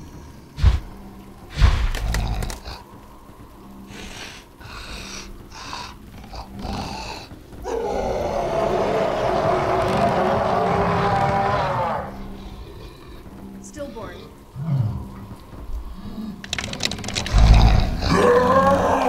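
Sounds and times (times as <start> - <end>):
animal-like growl: 3.9 - 13.6, 14.6 - 19.0.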